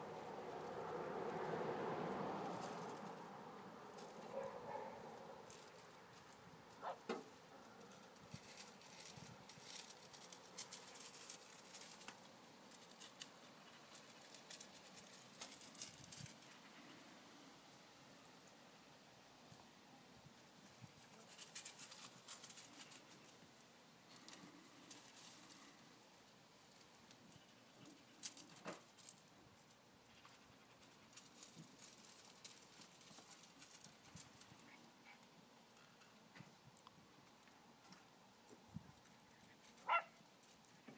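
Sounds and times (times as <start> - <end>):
puppy paws pattering on stone: 3.9 - 16.7, 20.6 - 23.5, 26.7 - 40.9.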